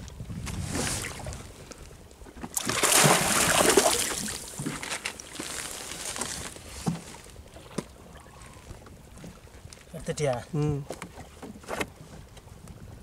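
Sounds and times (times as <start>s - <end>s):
sea water splashing: 2.6s - 6.0s.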